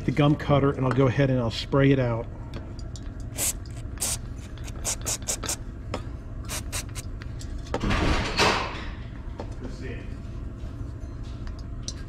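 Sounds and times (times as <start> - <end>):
aerosol spray hissing: 3.4 - 5.6, 6.5 - 7.0.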